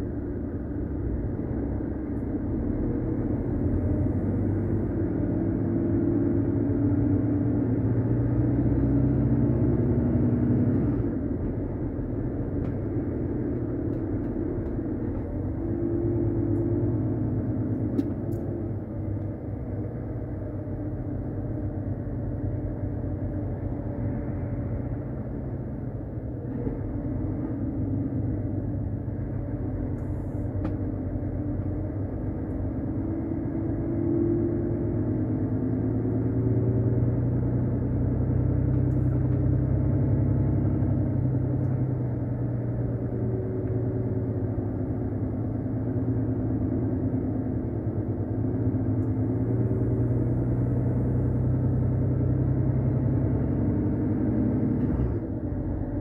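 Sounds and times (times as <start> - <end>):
truck diesel engine droning: 0.0 - 56.0.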